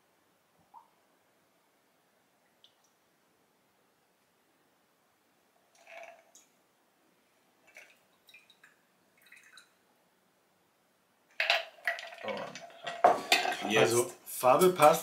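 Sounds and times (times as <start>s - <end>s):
liquid splashes and drips: 7.6s - 9.8s, 11.4s - 13.6s.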